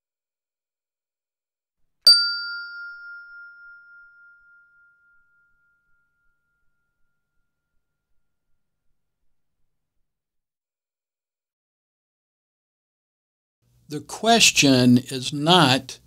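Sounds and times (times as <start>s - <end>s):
bell-like chime ringing: 2.1s - 7.2s.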